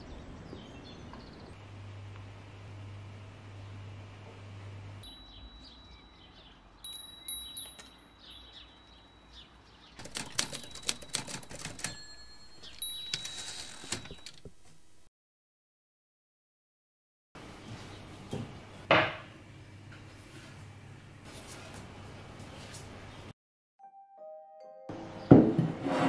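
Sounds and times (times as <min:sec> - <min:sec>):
wind chime ringing: 0:05.0 - 0:09.6, 0:11.8 - 0:13.6.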